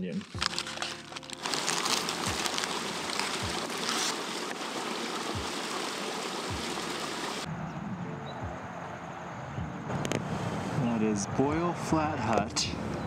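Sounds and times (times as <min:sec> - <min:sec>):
stream water rushing: 0:00.2 - 0:07.5.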